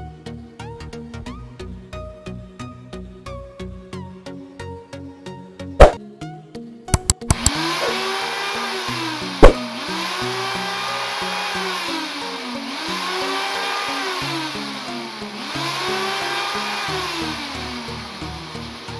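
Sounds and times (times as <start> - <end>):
sharp click: 6.9 - 7.6, 9.4 - 9.6
electric drill motor revving: 7.3 - 18.9.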